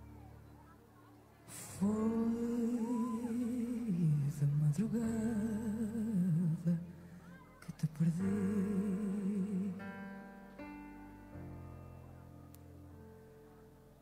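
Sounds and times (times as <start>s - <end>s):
woman singing wordless notes: 1.5s - 10.1s.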